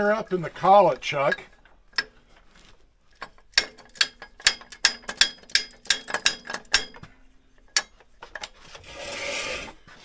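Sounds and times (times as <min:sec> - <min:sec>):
sharp metallic clicks: 0:03.2 - 0:07.0.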